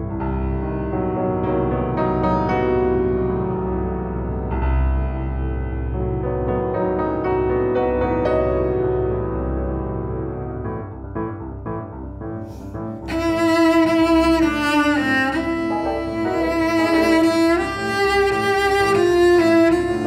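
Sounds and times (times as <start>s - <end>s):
piano playing soft chords: 0.0s - 20.0s
cello bowed melody: 12.4s - 20.0s.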